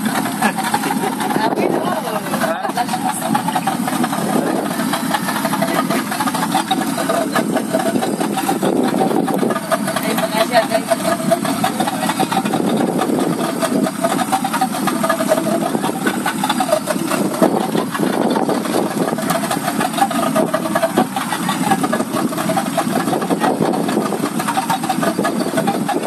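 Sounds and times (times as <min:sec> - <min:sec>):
motorboat engine running: 0:00.0 - 0:26.0
wind and water rushing: 0:00.0 - 0:26.0.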